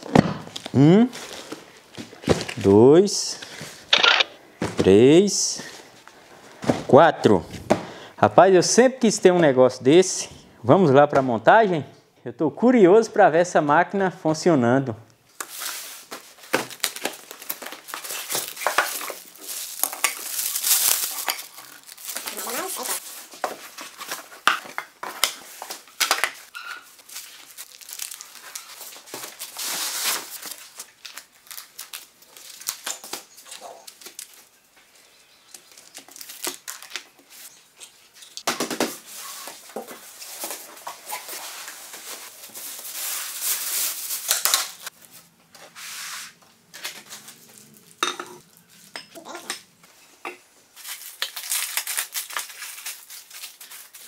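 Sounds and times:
cardboard and foam handled: 0:04.6 - 0:05.0
plastic bags rustling: 0:15.3 - 0:34.7, 0:39.0 - 0:45.4, 0:50.8 - 0:54.0.

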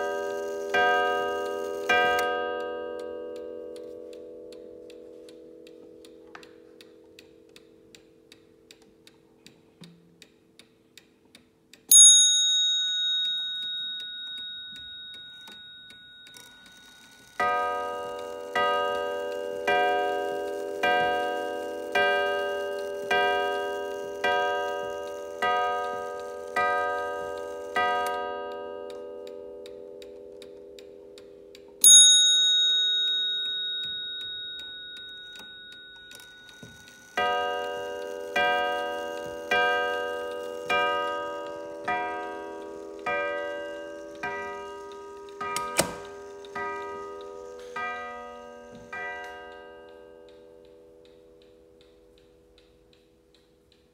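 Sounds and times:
clock ticking: 0:00.0 - 0:53.9
bell ringing high: 0:11.9 - 0:28.1, 0:31.8 - 0:50.1.

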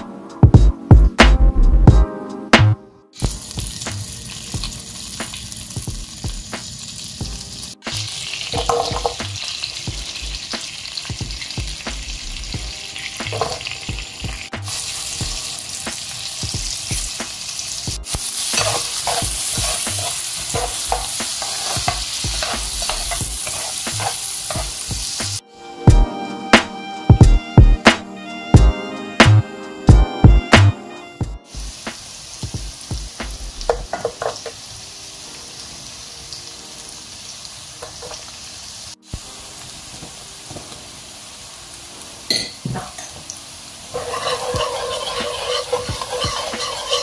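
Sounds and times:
onion sizzling in a frying pan: 0:03.2 - 0:25.4, 0:31.4 - 0:47.0
metal spoon scraping a pan: 0:08.4 - 0:09.2, 0:13.3 - 0:13.7, 0:18.3 - 0:24.8, 0:43.9 - 0:47.0.

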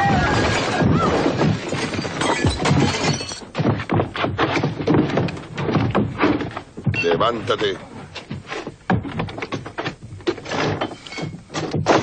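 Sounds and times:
punches and heavy thuds: 0:00.0 - 0:07.2, 0:08.8 - 0:12.0
things breaking: 0:00.0 - 0:07.2.

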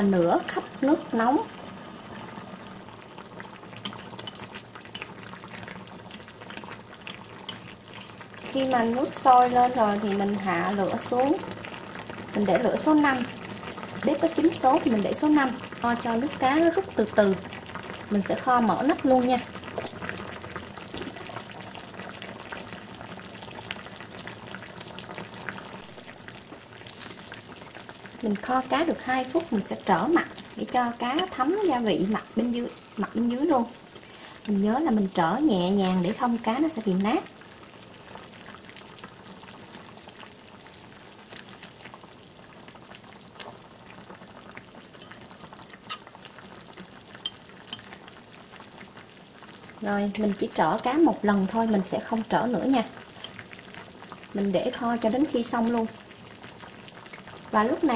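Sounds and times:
liquid simmering and bubbling: 0:00.0 - 0:57.9.

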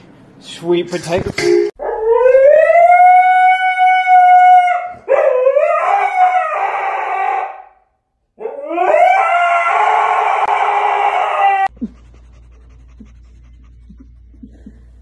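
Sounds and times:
husky howling: 0:01.8 - 0:07.8, 0:08.4 - 0:11.7.

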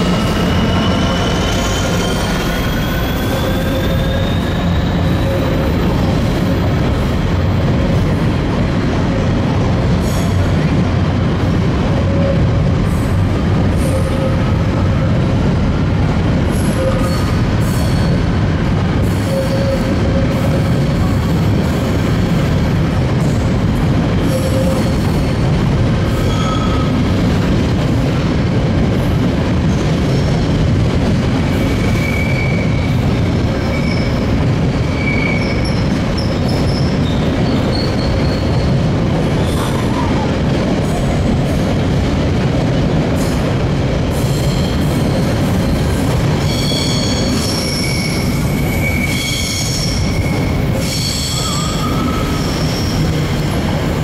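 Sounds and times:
freight train wheels rumbling: 0:00.0 - 0:54.0
wheel squeals: 0:33.6 - 0:38.8.

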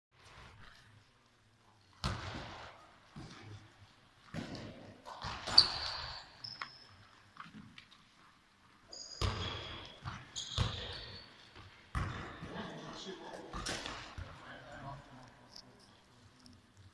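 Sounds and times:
ball impacts with hall echo: 0:01.8 - 0:06.8, 0:08.9 - 0:15.6
short high squeaks: 0:05.5 - 0:07.0, 0:08.9 - 0:09.6.

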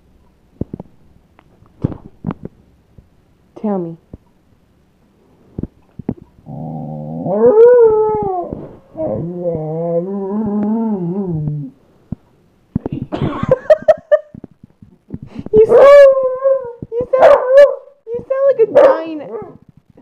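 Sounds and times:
dog grumbling: 0:06.4 - 0:11.8
dog howling: 0:06.8 - 0:11.7, 0:15.6 - 0:17.9.

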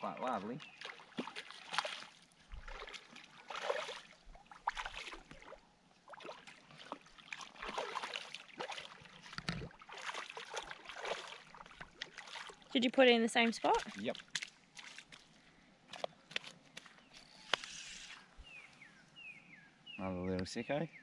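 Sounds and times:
fish splashing in water: 0:00.6 - 0:12.7.

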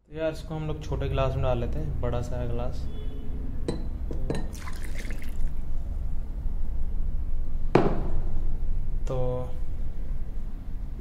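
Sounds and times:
tea pouring into glass mug: 0:04.4 - 0:05.6.

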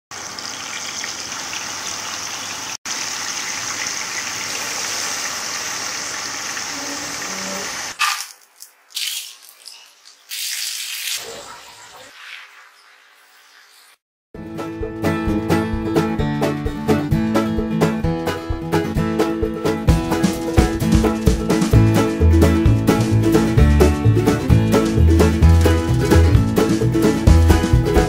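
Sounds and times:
chicken deep-frying in oil: 0:00.1 - 0:14.0.

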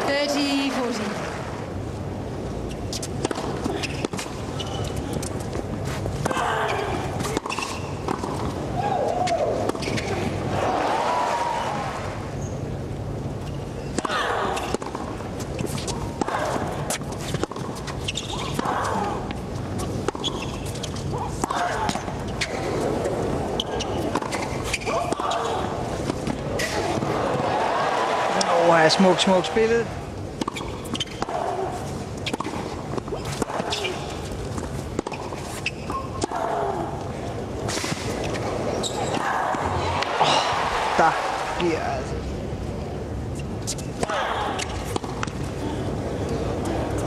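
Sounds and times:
stadium background noise: 0:00.0 - 0:47.0
tennis ball bouncing: 0:02.9 - 0:05.6, 0:07.2 - 0:08.6, 0:13.9 - 0:27.2, 0:30.4 - 0:40.2, 0:43.6 - 0:45.5
racket hitting tennis ball: 0:06.2 - 0:08.6, 0:13.9 - 0:27.1, 0:30.4 - 0:36.6
crowd murmur: 0:21.1 - 0:30.1, 0:36.2 - 0:43.4, 0:44.0 - 0:47.0.

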